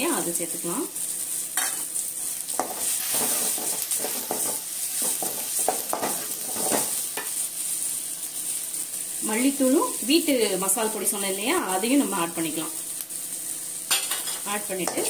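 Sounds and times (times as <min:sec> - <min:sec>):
oil sizzling: 0:00.0 - 0:15.0
wooden spatula scraping metal pan: 0:02.6 - 0:06.9.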